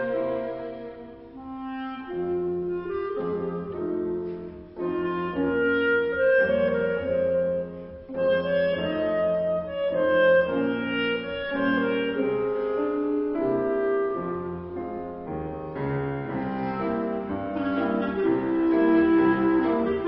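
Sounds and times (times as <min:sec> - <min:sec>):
violins: 0:00.0 - 0:05.5, 0:15.7 - 0:20.0
cello: 0:00.0 - 0:20.0
clarinet: 0:00.0 - 0:20.0
grand piano: 0:00.0 - 0:20.0
viola: 0:00.0 - 0:20.0.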